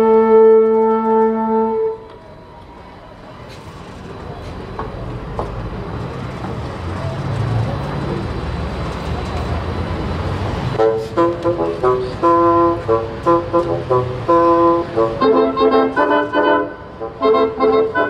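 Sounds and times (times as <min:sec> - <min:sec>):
woodwind ensemble chord: 0:00.0 - 0:02.6, 0:10.8 - 0:18.0
audience chatter: 0:00.7 - 0:18.0.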